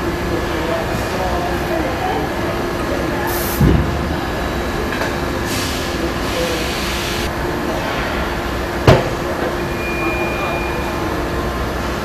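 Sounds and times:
machinery hum: 0:00.0 - 0:12.0
hiss: 0:05.5 - 0:07.3.

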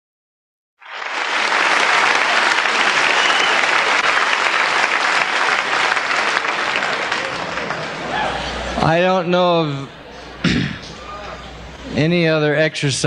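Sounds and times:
audience applauding: 0:00.8 - 0:08.9.

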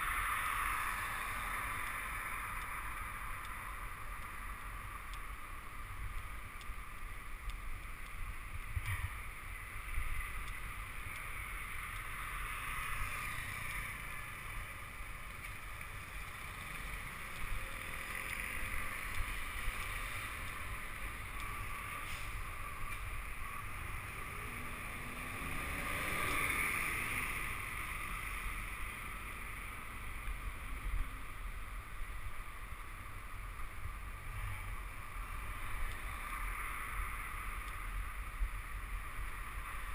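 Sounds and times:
road rumble: 0:00.0 - 0:39.9
motor vehicle passing: 0:11.5 - 0:22.5, 0:23.6 - 0:29.4.

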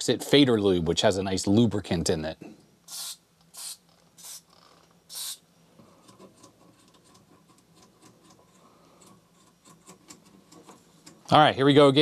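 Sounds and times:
aerosol spray hisses: 0:02.9 - 0:04.5, 0:05.1 - 0:05.4
faint small clicks and scratches: 0:05.9 - 0:11.3.

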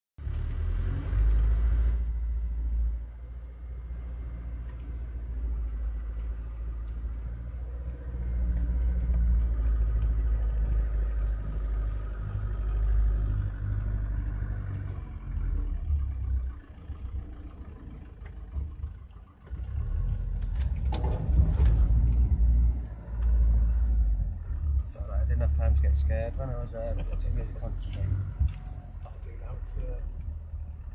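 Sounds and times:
off-road vehicle engine under load: 0:00.2 - 0:30.9
vehicle knocks and rattles: 0:17.0 - 0:22.8.

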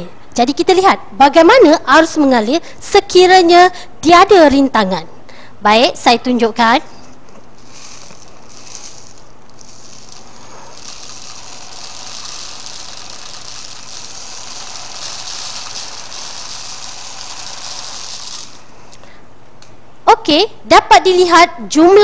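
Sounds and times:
magnets rattling in plastic tube: 0:07.6 - 0:18.7.

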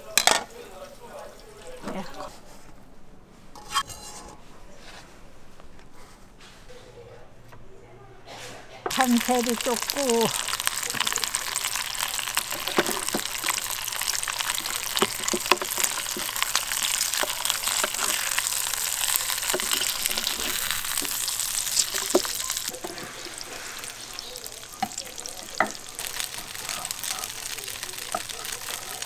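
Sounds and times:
meat sizzling in oil: 0:08.9 - 0:29.0.

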